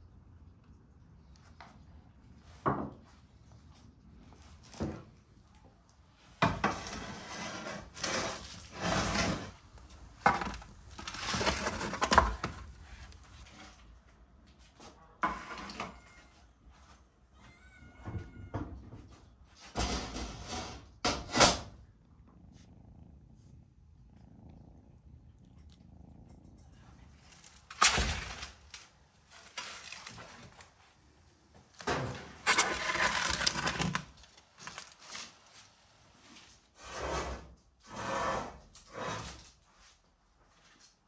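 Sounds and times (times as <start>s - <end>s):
metal trays scraping and clattering: 6.4s - 9.6s, 10.2s - 12.7s, 19.6s - 21.7s, 27.3s - 28.8s, 31.8s - 35.3s.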